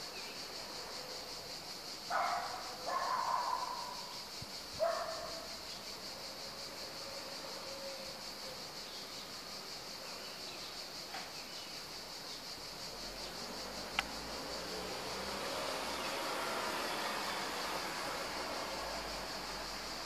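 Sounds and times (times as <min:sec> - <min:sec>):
insects chirring: 0:00.0 - 0:20.0
sharp click: 0:13.9 - 0:14.1.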